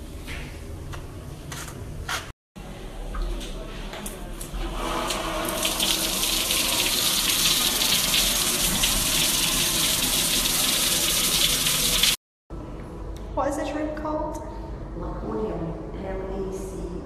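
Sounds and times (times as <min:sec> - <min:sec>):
shower water spraying: 0:04.6 - 0:12.2.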